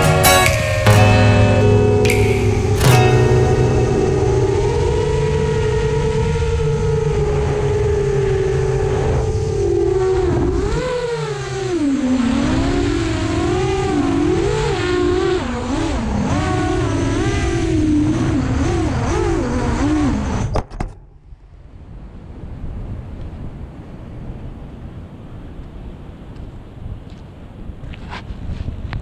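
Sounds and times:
surf: 0.0 - 20.0
faint wind: 0.0 - 29.0
quadcopter motors whining: 4.2 - 20.5.

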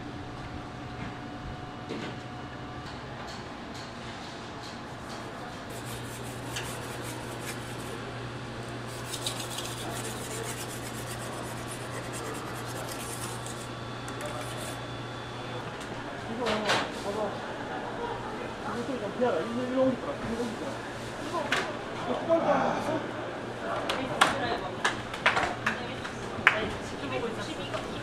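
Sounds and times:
knife scraping on a whetstone: 5.7 - 8.0, 8.8 - 14.8.

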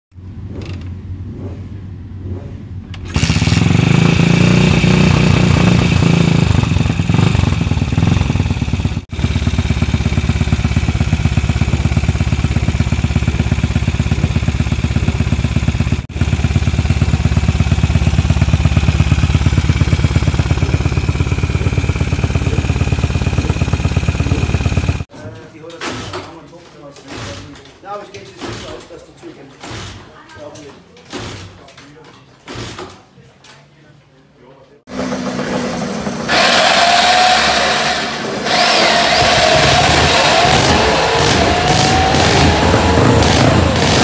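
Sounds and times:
motorcycle engine kick-started: 2.9 - 25.1, 34.9 - 44.0.

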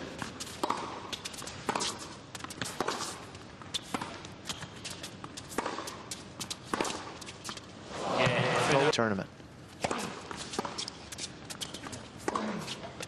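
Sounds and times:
low arena background: 7.8 - 10.2.

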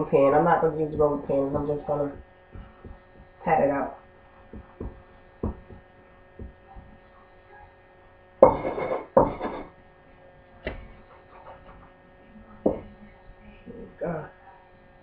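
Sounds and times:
electrical hum: 0.0 - 15.0
glass pressing through dough: 0.8 - 3.5, 4.3 - 7.1, 8.4 - 9.7
hands patting dough on wood: 0.8 - 3.5, 4.4 - 7.0.

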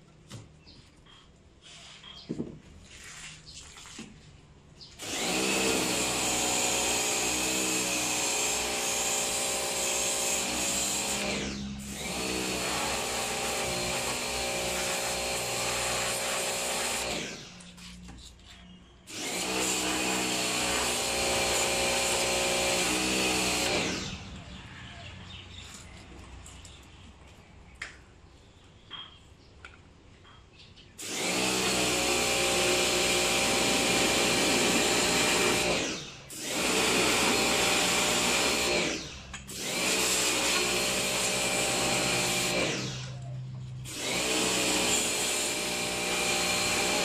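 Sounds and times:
pressure washer motor whining: 31.0 - 47.0.

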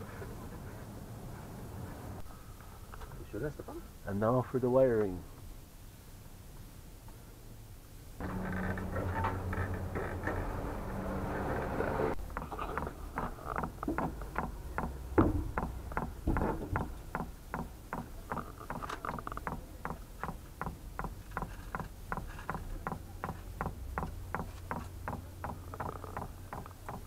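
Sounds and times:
steady low hum: 8.2 - 16.3.

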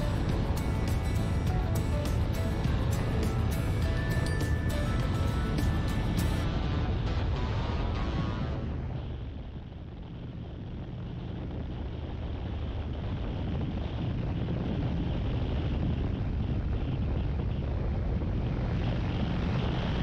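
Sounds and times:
motorcycle engine cruising: 0.0 - 6.5
wind rushing over microphone: 0.0 - 20.0.

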